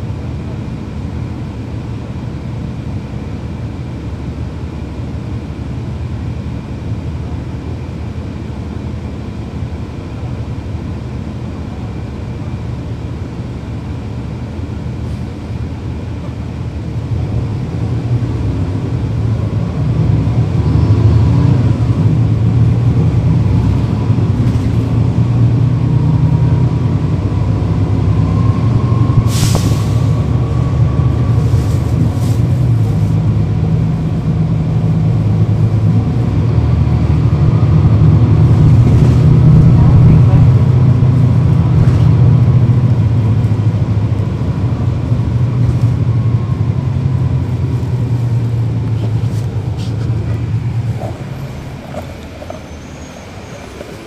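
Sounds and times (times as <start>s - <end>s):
bus diesel engine running: 0.0s - 54.0s
thin engine whine: 26.1s - 32.4s
short sharp hiss: 29.2s - 30.2s.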